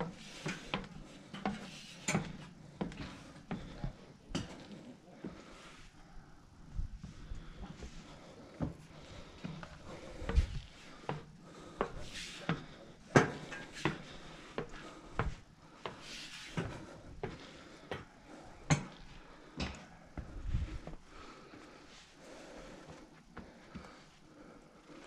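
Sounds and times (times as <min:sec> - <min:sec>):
footsteps on wooden stairs: 0:00.0 - 0:04.0, 0:07.6 - 0:21.1.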